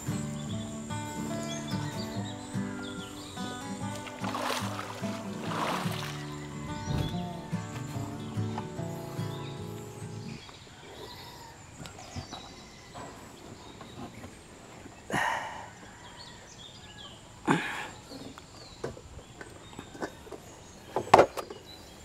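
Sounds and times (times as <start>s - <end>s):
faint bird chirps: 0.0s - 22.0s
person shifting in plastic boat: 3.8s - 8.8s, 11.9s - 15.0s.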